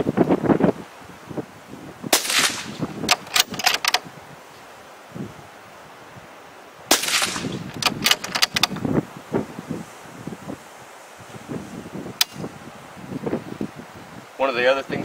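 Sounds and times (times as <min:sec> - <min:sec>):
rifle shots: 0:02.1 - 0:03.8, 0:06.9 - 0:08.5
rifle bolt clacks: 0:02.2 - 0:04.0, 0:07.0 - 0:08.8.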